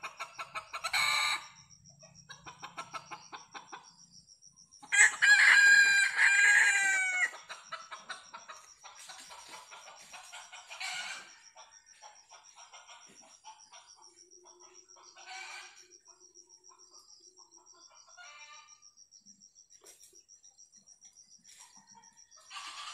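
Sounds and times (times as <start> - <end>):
rooster crowing: 4.9 - 7.4, 22.3 - 22.9.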